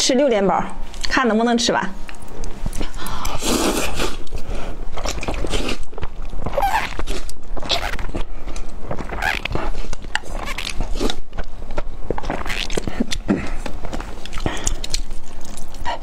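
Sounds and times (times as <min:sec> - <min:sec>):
person chewing: 0:02.1 - 0:16.0
person slurping noodles: 0:03.2 - 0:05.9.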